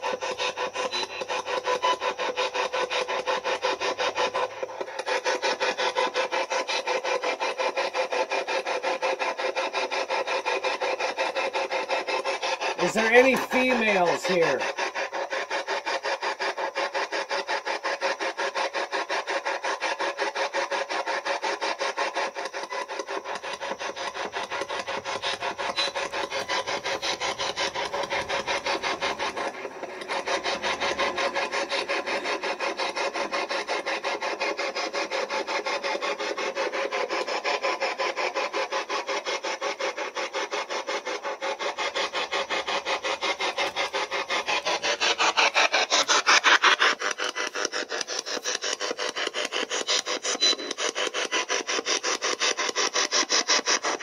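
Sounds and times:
scanning radio static rattle: 0:12.8 - 0:14.6.

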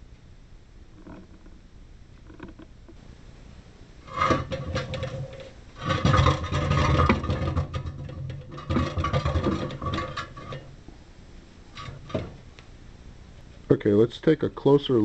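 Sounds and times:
knocks and rattles: 0:04.0 - 0:10.7, 0:11.7 - 0:12.5.

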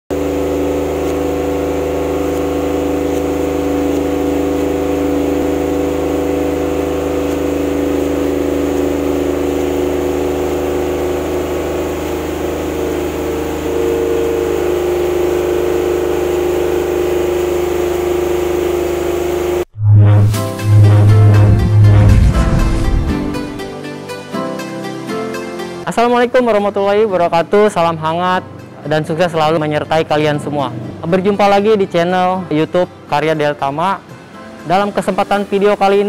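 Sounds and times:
diesel generator running: 0:00.1 - 0:23.7.

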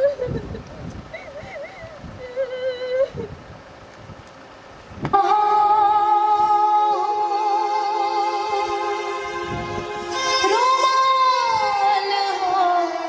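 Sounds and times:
sustained hymn chord: 0:05.1 - 0:13.0.

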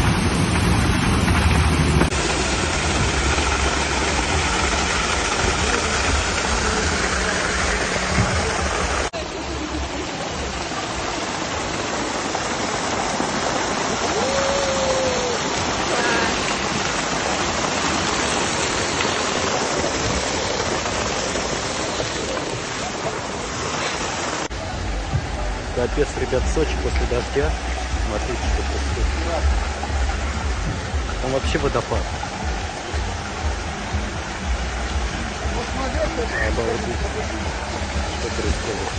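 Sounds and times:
rainwater splashing onto paving: 0:00.0 - 0:38.9.

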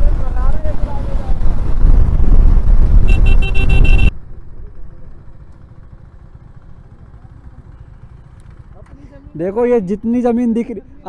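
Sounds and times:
wind rumble on microphone: 0:00.0 - 0:04.1
vehicle horn short toots: 0:03.0 - 0:04.1.

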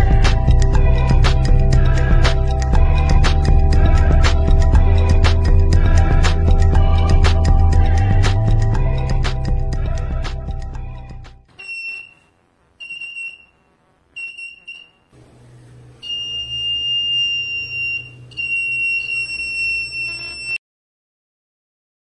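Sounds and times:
buzzer beeping high tone: 0:11.6 - 0:15.2, 0:16.0 - 0:20.6.

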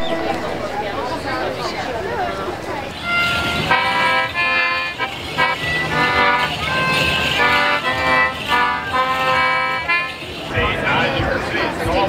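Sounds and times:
folk dance tune on squeezebox: 0:02.8 - 0:11.4.

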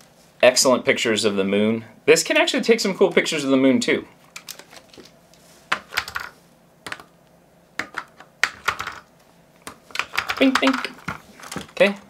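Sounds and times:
batteries being handled: 0:09.7 - 0:12.0.

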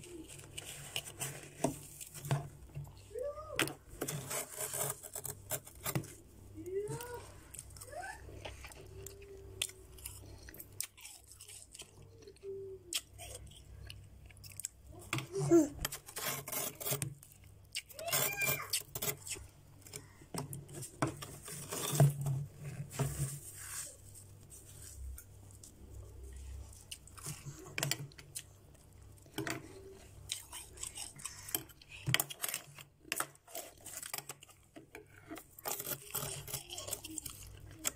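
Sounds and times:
spatula scraping frost in bowl: 0:04.0 - 0:06.2, 0:15.9 - 0:17.1.

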